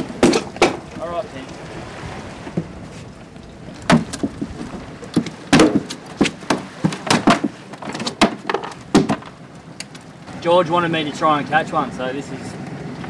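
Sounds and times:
fish slapping and thudding: 0:00.0 - 0:01.0, 0:03.8 - 0:09.4
water rushing along hull: 0:00.0 - 0:13.0.

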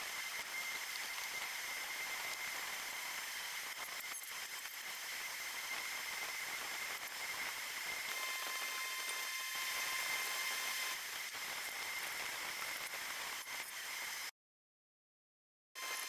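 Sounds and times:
thin high whine: 0:00.0 - 0:14.3, 0:15.8 - 0:16.0.

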